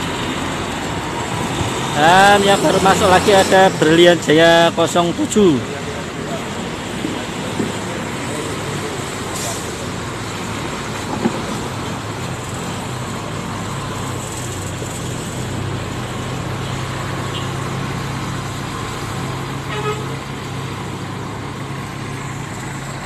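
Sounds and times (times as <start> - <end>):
bus diesel engine droning: 0.0 - 23.0.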